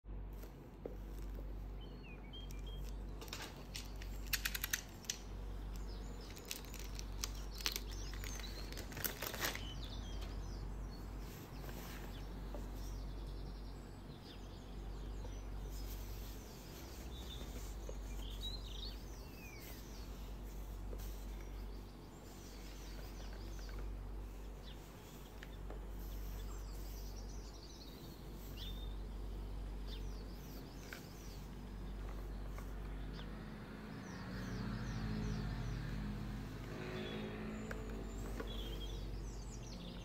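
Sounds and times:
birds chirping: 0.1 - 40.0
steady low hum: 0.1 - 40.0
shrink-wrapped box crackling: 3.3 - 5.2, 6.2 - 9.9.

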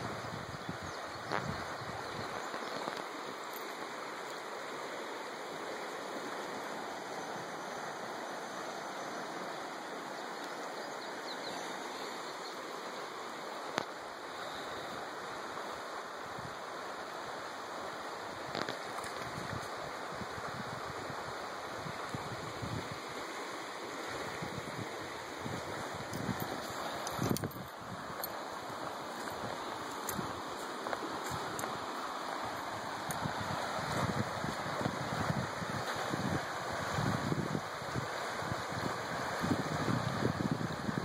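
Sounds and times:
river rushing: 0.0 - 41.0.

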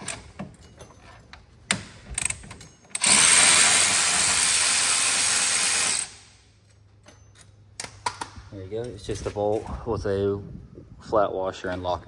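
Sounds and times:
electric ratchet spinning: 3.0 - 6.2.

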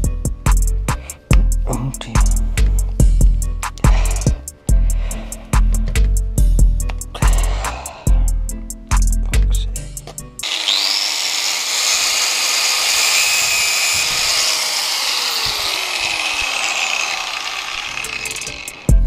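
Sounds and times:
angle grinder cutting rubber hose: 10.4 - 19.0.

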